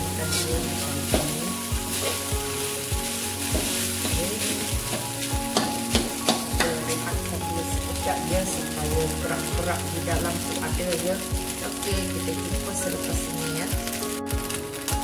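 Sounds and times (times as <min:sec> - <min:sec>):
rice sizzling: 0:00.0 - 0:15.0
metal spatula scraping wok: 0:00.1 - 0:07.0.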